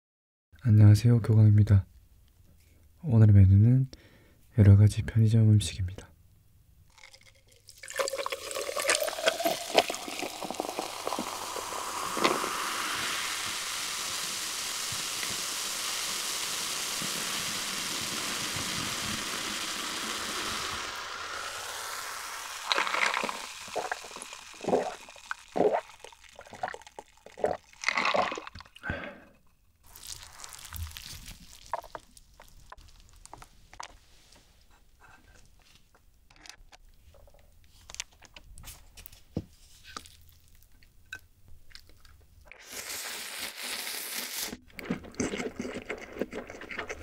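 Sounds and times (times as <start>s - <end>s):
soda pouring over ice: 6.9s - 28.8s, 29.8s - 33.5s, 42.6s - 47.0s
soda fizzing: 6.9s - 28.9s, 29.8s - 33.8s, 42.5s - 47.0s
loud gulps: 22.6s - 29.4s.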